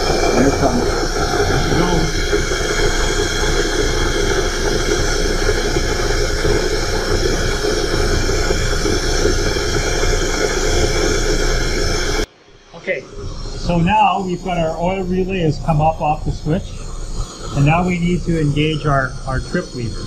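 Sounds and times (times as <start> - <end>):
loud hiss of steam: 0.0 - 20.0
machinery hum: 0.0 - 20.0
steady high tones: 0.0 - 20.0.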